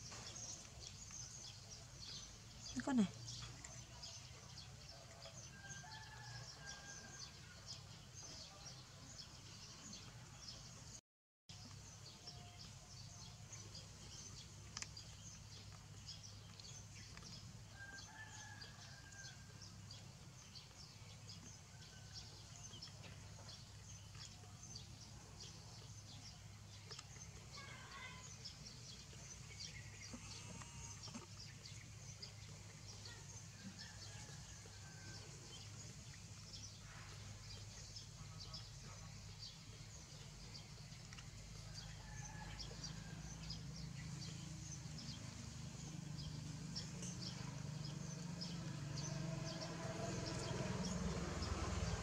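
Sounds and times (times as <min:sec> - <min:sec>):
distant chickens clucking and crowing: 0:05.2 - 0:07.7, 0:17.6 - 0:20.2, 0:33.5 - 0:35.9, 0:41.5 - 0:44.2.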